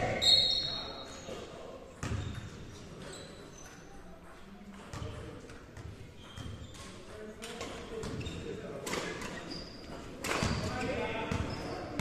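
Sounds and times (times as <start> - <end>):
basketball bouncing: 2.0 - 2.5, 4.9 - 6.9.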